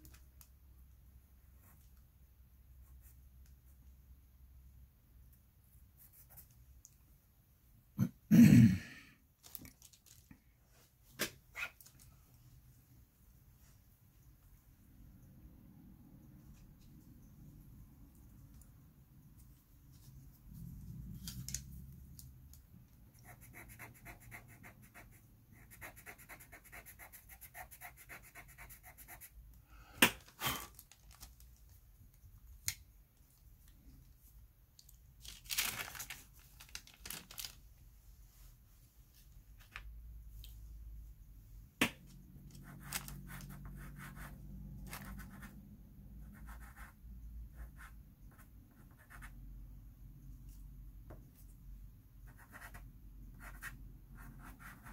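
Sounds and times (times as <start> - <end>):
paper rustle: 9.4 - 12.2, 30.2 - 31.8, 35.2 - 37.8, 42.8 - 43.2
pencil scratching on paper: 23.1 - 29.4, 42.6 - 45.6, 46.2 - 49.4, 52.3 - 54.9.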